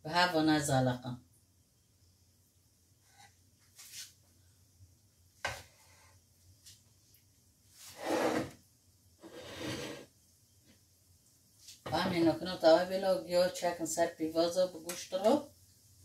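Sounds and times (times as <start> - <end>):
crockery scraping across counter: 7.8 - 8.6, 9.2 - 10.2.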